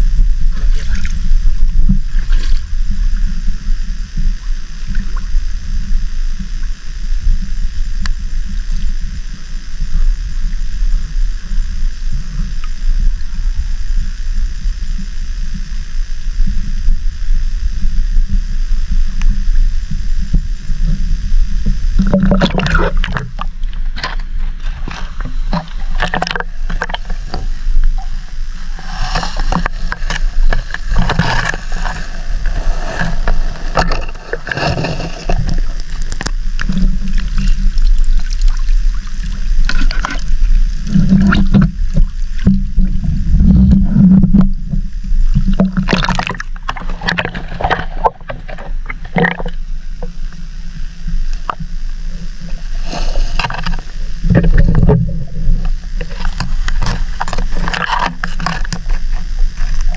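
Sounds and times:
muffled water sloshing: 0.0 - 6.8, 19.0 - 59.9
low rumble: 0.0 - 59.9
splashy crackles and knocks: 45.4 - 49.6.

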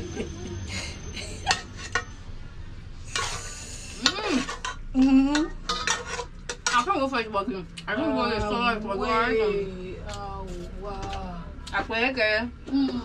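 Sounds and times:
metal spoon scraping in pot: 1.4 - 2.3, 3.0 - 7.2.

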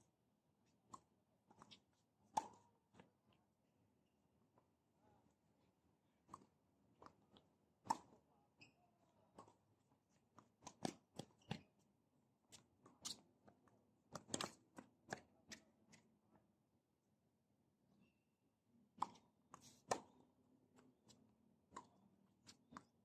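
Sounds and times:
tennis balls struck by rackets: 2.3 - 2.6, 7.8 - 8.2, 10.6 - 11.7, 19.8 - 20.2.

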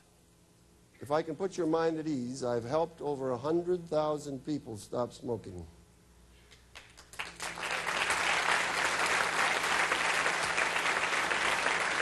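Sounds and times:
audience applauding: 6.8 - 12.0.

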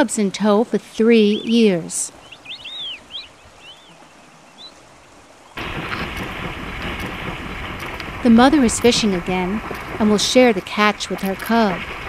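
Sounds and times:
bear splashing through water: 5.1 - 12.0.

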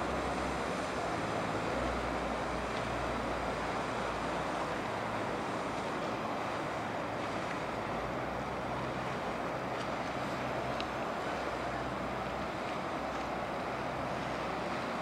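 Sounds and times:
low boat engine hum: 0.0 - 15.0
river water rushing: 0.0 - 15.0.

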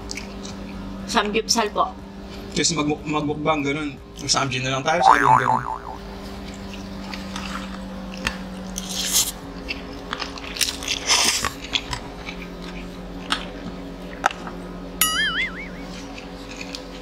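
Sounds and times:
wet mouth clicks: 5.0 - 6.0
chewing and crunching food: 7.3 - 14.6, 15.9 - 17.0.

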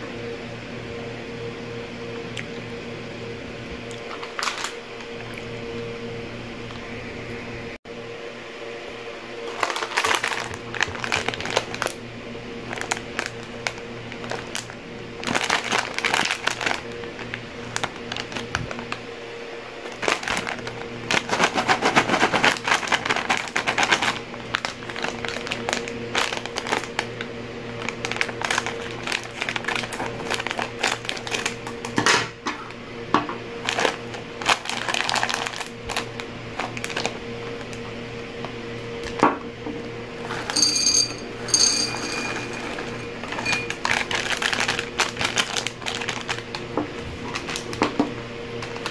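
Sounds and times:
plastic snack bag crinkling: 4.0 - 4.8, 9.4 - 12.0, 12.6 - 19.0, 19.8 - 32.0, 33.6 - 37.8, 40.2 - 40.6, 41.4 - 47.9, 48.6 - 48.9.

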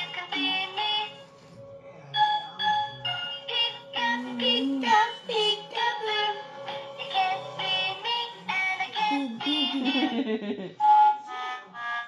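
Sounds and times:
electronic toy singing: 0.0 - 1.2, 2.1 - 10.2.

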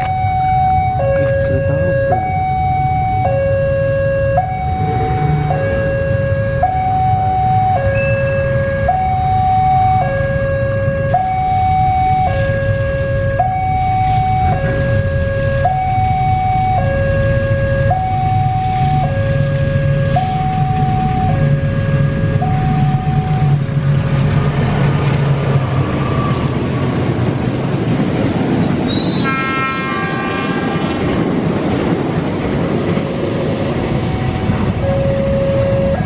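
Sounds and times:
level crossing two-tone alarm: 0.0 - 23.6, 33.9 - 36.0
diesel locomotive rumble: 0.0 - 36.0.

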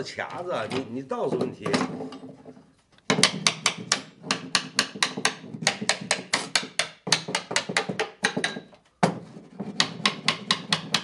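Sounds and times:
small hammer tapping on wood: 3.1 - 9.2, 9.8 - 11.0.

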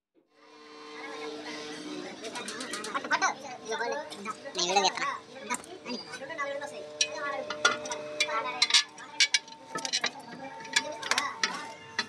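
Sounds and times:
steel plate clinking: 7.0 - 12.0.

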